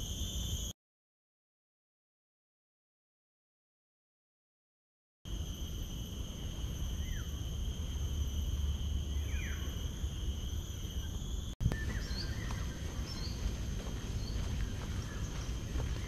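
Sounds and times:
high insect drone: 0.0 - 0.7, 5.3 - 16.0
constant low rumble: 5.3 - 16.0
bird chirps: 9.0 - 9.8, 10.8 - 16.0.

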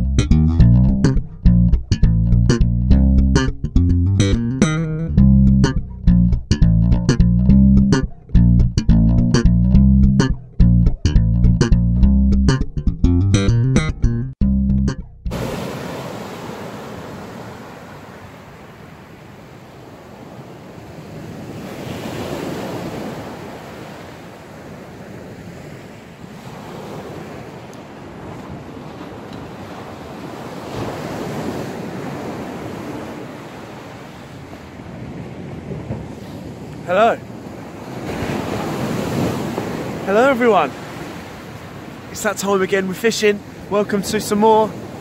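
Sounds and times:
bass guitar line: 0.0 - 15.4
steady beat: 0.0 - 15.4
sea waves breaking: 15.3 - 45.0
wind buffeting microphone: 34.4 - 36.7.

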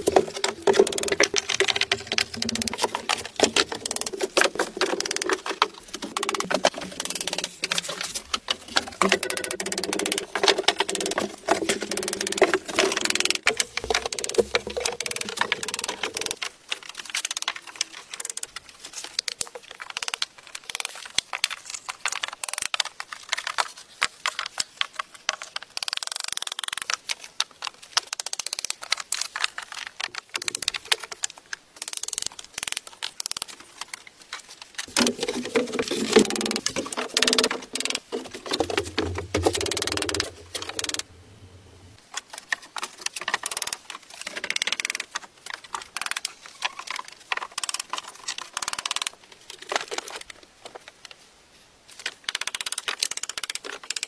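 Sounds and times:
wooden planks knocking: 0.0 - 16.5, 34.9 - 41.1.

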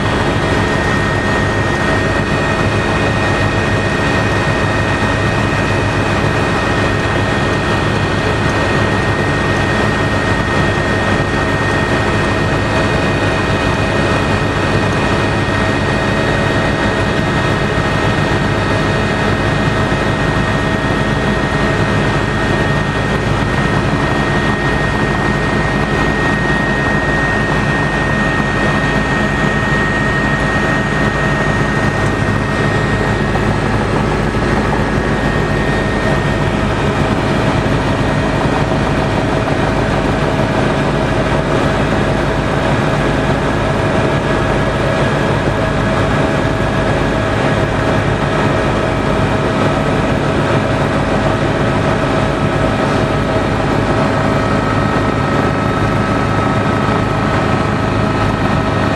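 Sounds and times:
helicopter engine and rotor drone: 0.0 - 58.9
high whine: 0.0 - 58.9.

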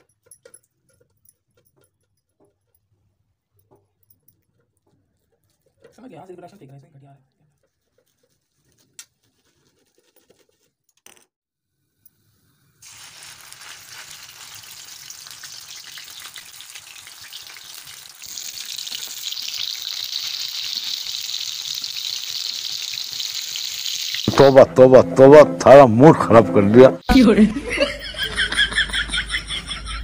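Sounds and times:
food frying in hot oil: 12.3 - 24.6.

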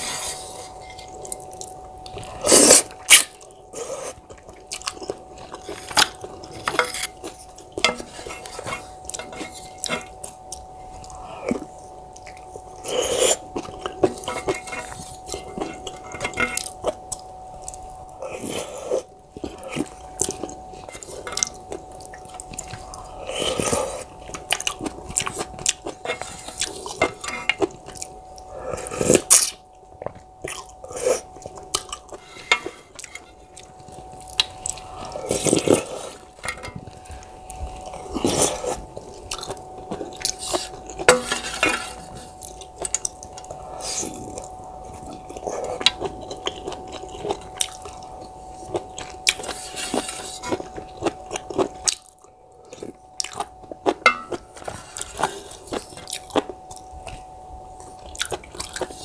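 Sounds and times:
faint steady hum: 0.0 - 59.0
wet chewing with mouth clicks: 0.5 - 59.0
slurping noodles: 2.3 - 3.2.

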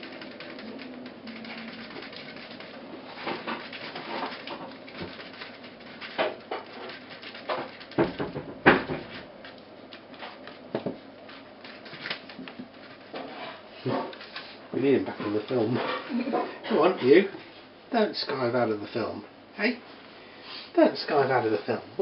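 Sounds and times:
puppy paws scratching and shuffling: 0.1 - 8.1, 9.0 - 16.2.

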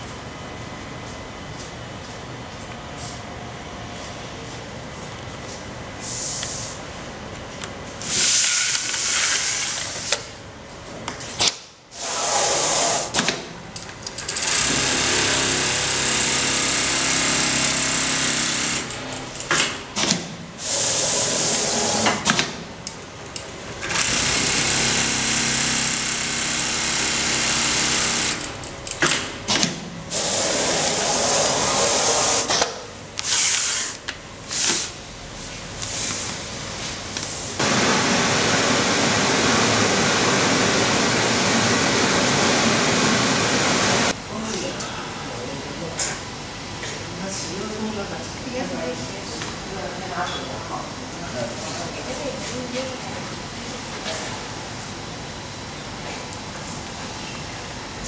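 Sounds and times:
sewing machine stitching: 14.2 - 19.0.

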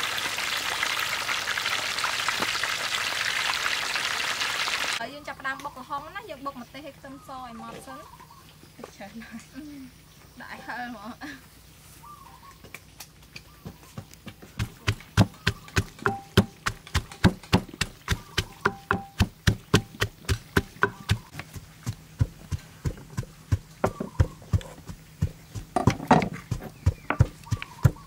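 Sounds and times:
pestle pounding in mortar: 14.4 - 28.0.

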